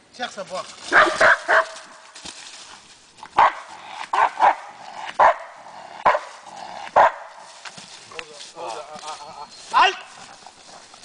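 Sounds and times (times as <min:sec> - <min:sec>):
dog barking: 0:00.9 - 0:01.8, 0:03.4 - 0:06.3, 0:07.0 - 0:07.3.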